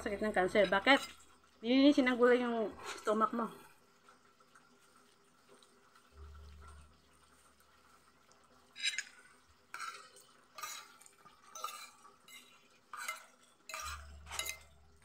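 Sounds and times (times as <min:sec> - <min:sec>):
cutlery scraping on ceramic plate: 0:08.8 - 0:14.8.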